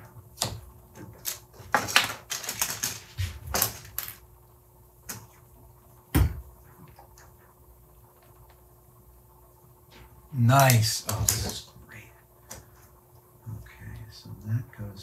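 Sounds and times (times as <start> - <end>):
plastic parts clicking: 1.2 - 4.2.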